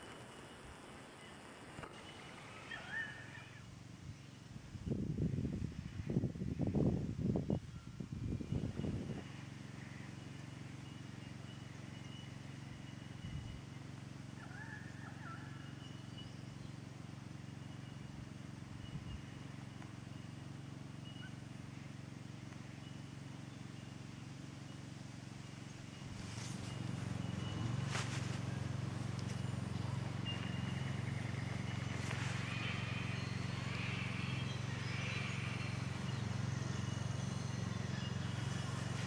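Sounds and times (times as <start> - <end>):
bird chirp: 0.0 - 5.0, 7.6 - 39.0
steady low hum: 0.0 - 39.0
rustling: 26.0 - 34.1.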